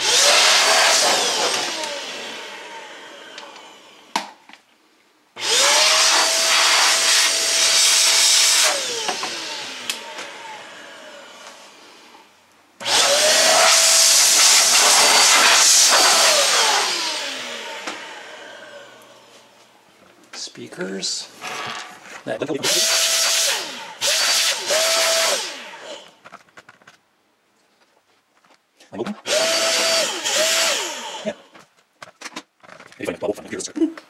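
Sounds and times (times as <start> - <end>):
electric air duster whining: 0.0 - 4.1, 5.4 - 19.6, 22.6 - 26.2, 29.3 - 31.5.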